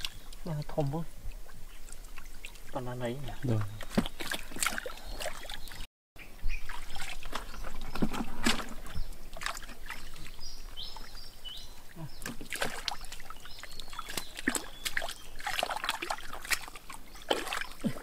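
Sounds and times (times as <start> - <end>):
hands splashing in muddy water: 3.7 - 5.8, 6.7 - 10.3, 12.0 - 18.0.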